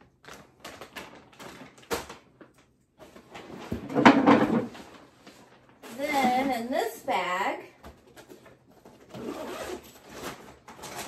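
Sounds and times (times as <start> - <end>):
plastic bags crinkling: 0.0 - 3.5, 4.6 - 6.9.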